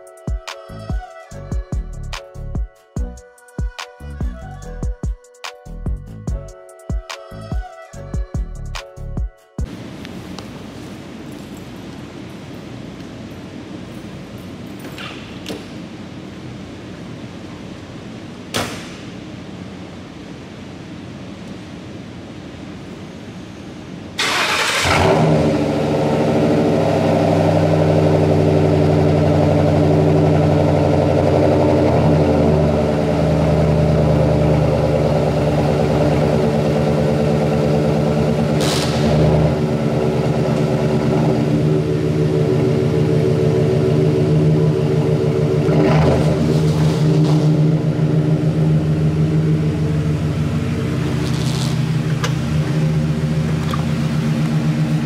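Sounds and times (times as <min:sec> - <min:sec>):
car engine starting and idling: 0:24.2 - 0:55.0.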